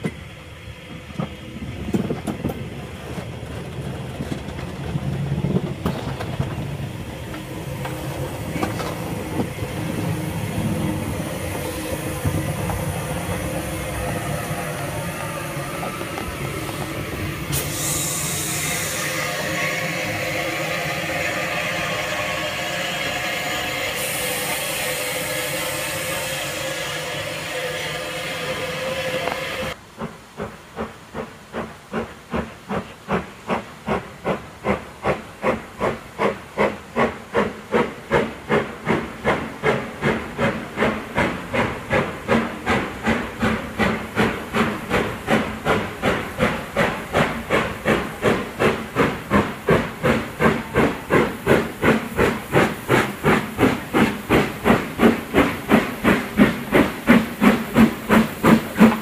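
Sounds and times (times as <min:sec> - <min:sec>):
steam hiss: 0:00.0 - 0:59.0
steam locomotive chuffing: 0:00.0 - 0:59.0.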